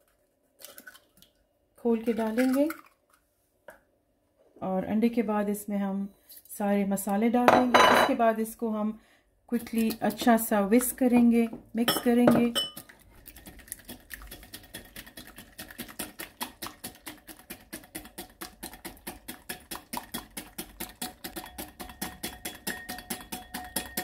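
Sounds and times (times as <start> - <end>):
whisk beating egg in glass bowl: 12.0 - 24.0.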